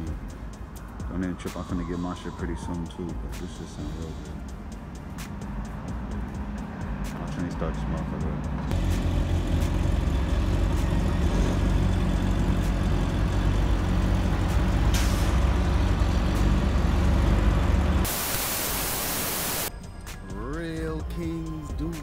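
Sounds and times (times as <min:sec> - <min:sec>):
tv static hiss: 0:18.1 - 0:19.7.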